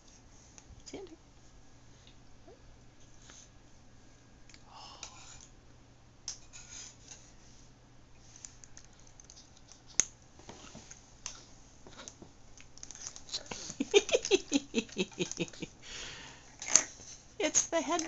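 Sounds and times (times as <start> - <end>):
baby eating clicks and rustles: 8.2 - 15.8, 16.5 - 18.0.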